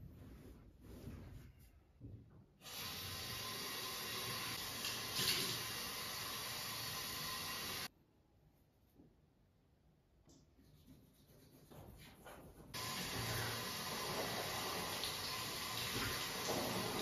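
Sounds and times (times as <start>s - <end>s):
sink tap running: 2.6s - 7.9s, 12.8s - 17.0s.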